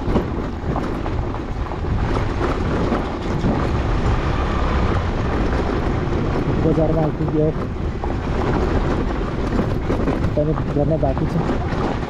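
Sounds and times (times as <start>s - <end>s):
vehicle rumbling on stony road: 0.0s - 12.0s.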